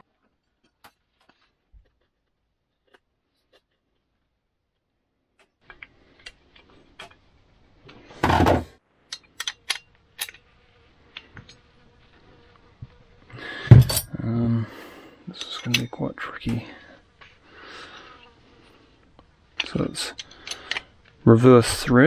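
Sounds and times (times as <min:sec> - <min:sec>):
faint hum: 0:04.4 - 0:22.0
clicks and taps of tools: 0:09.1 - 0:10.4.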